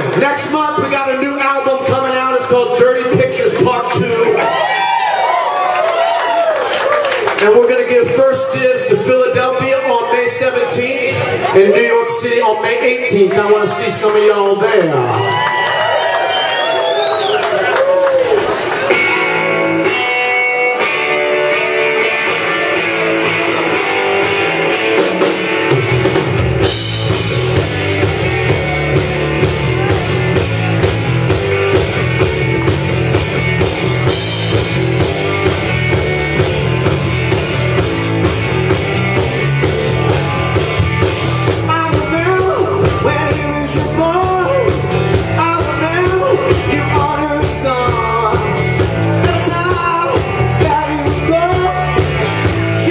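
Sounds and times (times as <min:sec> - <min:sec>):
bass and drums: 0:00.0 - 0:52.9
electric guitars: 0:00.0 - 0:52.9
man singing: 0:41.6 - 0:52.9.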